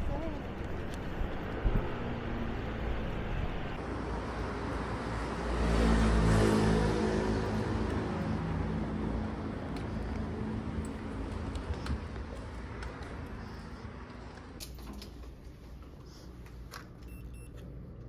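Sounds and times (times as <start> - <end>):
street traffic noise: 0.0 - 18.0.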